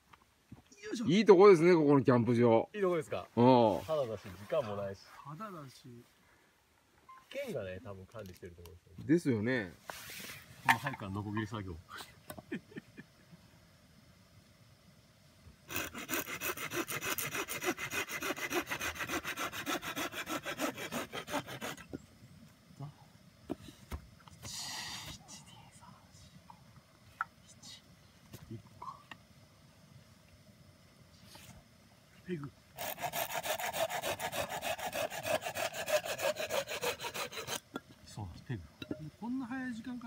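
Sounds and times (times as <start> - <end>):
hand saw cutting wood: 15.7 - 21.9, 32.8 - 37.7.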